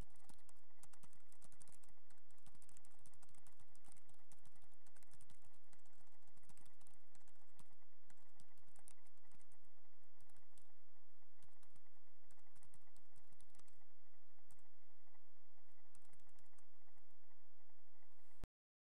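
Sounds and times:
computer keyboard key clicks: 0.0s - 9.6s, 11.4s - 13.8s, 15.9s - 16.6s.

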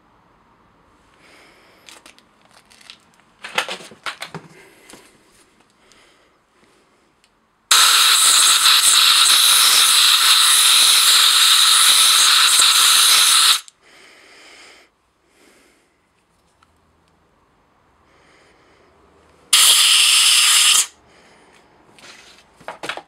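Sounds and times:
pressurised air jet hissing: 7.7s - 13.7s, 19.5s - 20.9s.

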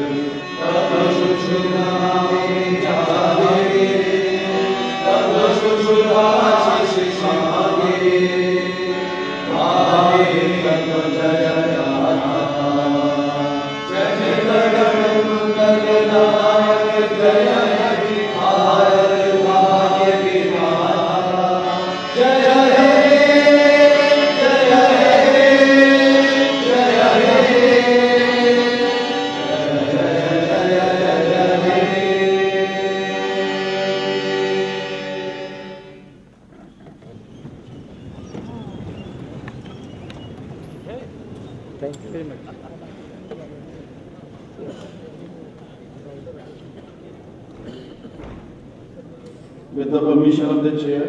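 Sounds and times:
vocal chanting: 0.0s - 35.0s.

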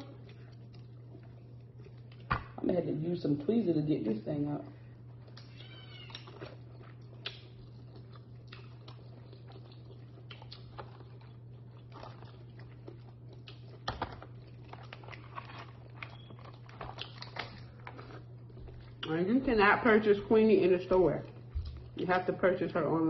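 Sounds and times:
chewing and wet mouth smacks: 0.0s - 2.6s, 5.0s - 19.3s, 21.2s - 22.0s
steady low hum: 0.0s - 23.0s
lobster shell cracking: 8.5s - 18.4s.

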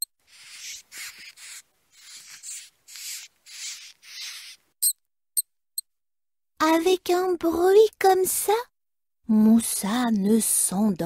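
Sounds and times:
mouse squeaking: 0.0s - 5.0s.

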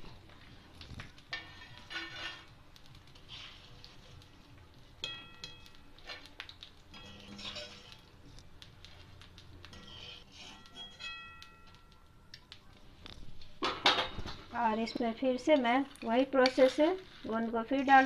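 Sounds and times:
wire strainer scraping steel pan: 1.3s - 2.5s, 6.9s - 8.1s, 9.7s - 11.3s.

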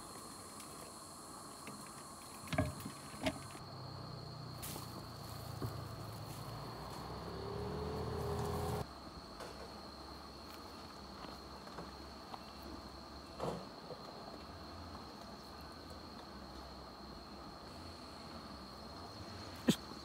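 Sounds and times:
low engine-like hum: 3.2s - 8.9s.

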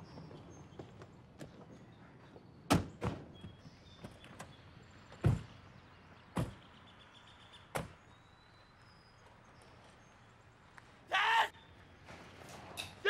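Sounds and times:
car doors thunking shut: 2.7s - 3.3s, 5.2s - 5.6s.

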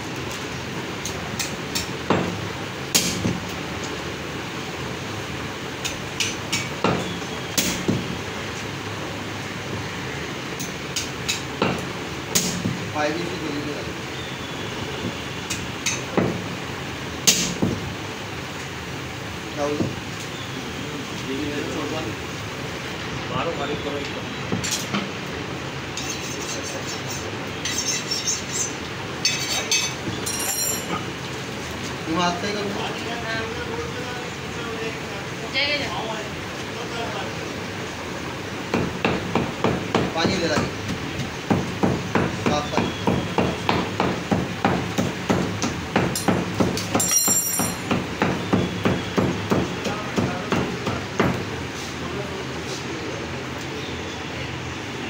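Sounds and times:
cleaver chopping meat on wood: 6.2s - 8.1s, 11.0s - 12.8s, 15.0s - 16.4s, 17.2s - 17.8s, 38.7s - 47.1s, 47.8s - 51.5s
cleaver scraping on steel rod: 26.0s - 29.7s.

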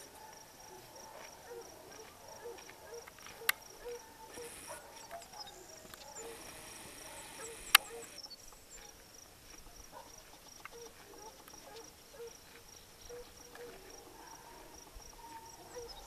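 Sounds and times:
insects chirping trill: 3.0s - 13.5s
sharp click: 7.3s - 8.2s.

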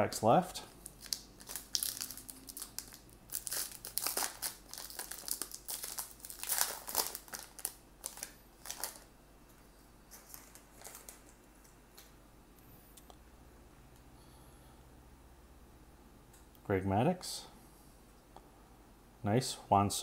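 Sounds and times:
card pack wrapper crinkling and tearing: 0.7s - 9.1s, 10.1s - 11.4s.

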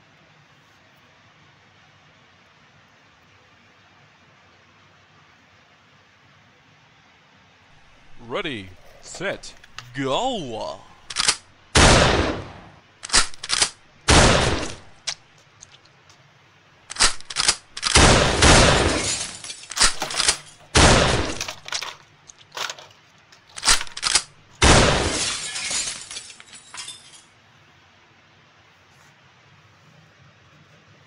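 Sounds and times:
toy gun shooting effects: 8.0s - 15.8s, 16.9s - 21.8s, 23.6s - 25.0s.

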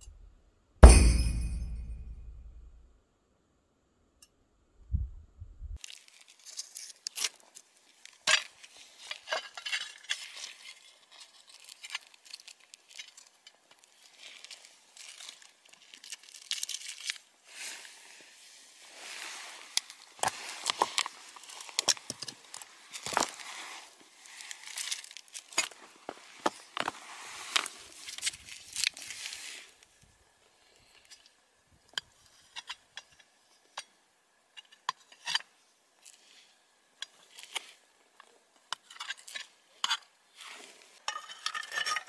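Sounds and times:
packaging crinkling: 5.8s - 7.6s, 10.4s - 17.3s.

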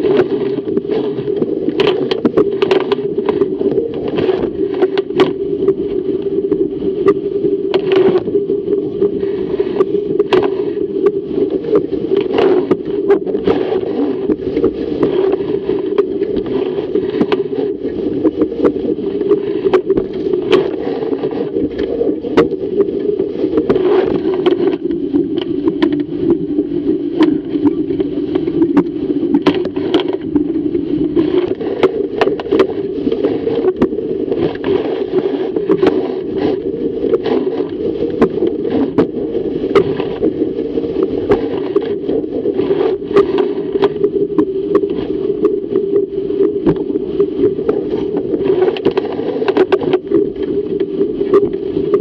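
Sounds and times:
rush of water and wind along hull: 0.0s - 52.0s
water slapping and splashing: 0.0s - 52.0s.

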